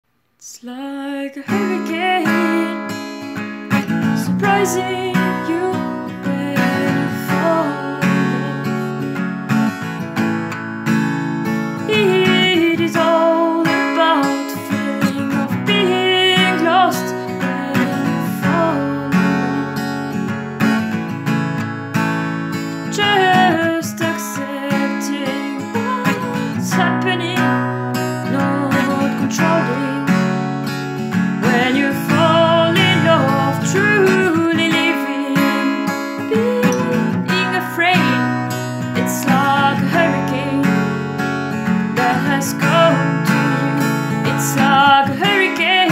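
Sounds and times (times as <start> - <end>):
acoustic guitar strumming: 1.5 - 45.9.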